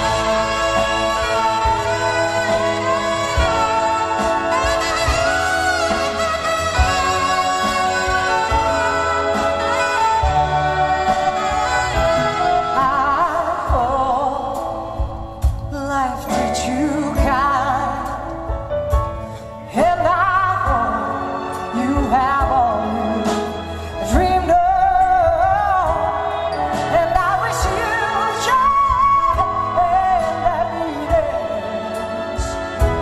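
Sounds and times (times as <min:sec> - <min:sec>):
orchestra with violins: 0:00.0 - 0:33.0
woman singing a ballad: 0:07.0 - 0:33.0.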